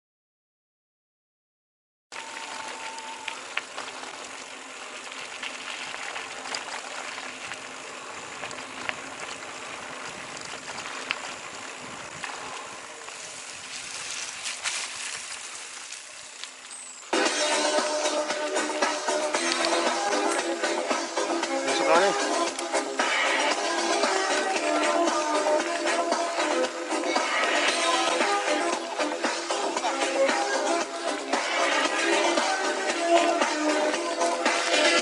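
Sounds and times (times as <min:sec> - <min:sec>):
steady rushing noise: 0:02.4 - 0:16.4
music: 0:17.1 - 0:35.0.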